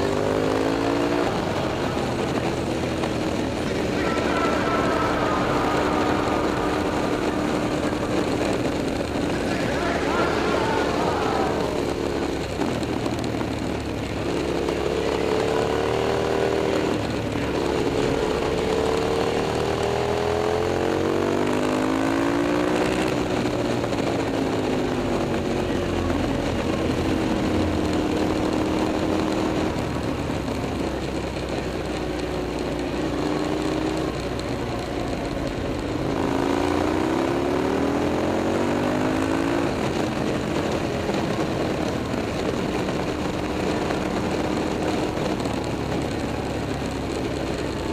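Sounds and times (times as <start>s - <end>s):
motorcycle engine revving: 0.0s - 47.9s.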